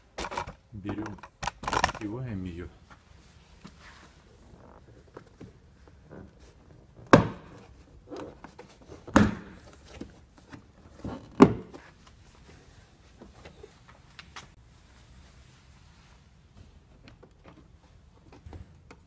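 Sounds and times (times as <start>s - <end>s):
faint handling noise: 0.2s - 7.0s.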